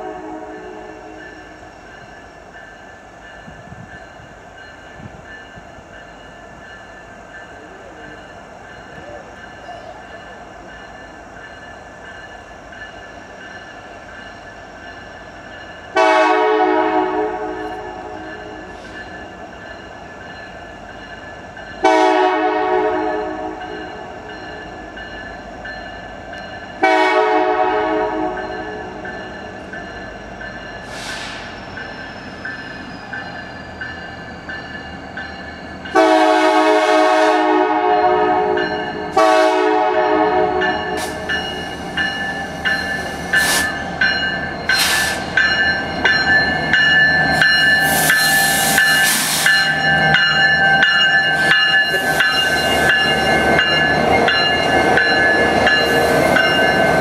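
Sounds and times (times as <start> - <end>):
locomotive air horn blasts: 0.0 - 1.2, 16.0 - 18.4, 21.8 - 23.6, 26.8 - 28.5, 35.9 - 41.2
train rumbling: 0.0 - 57.0.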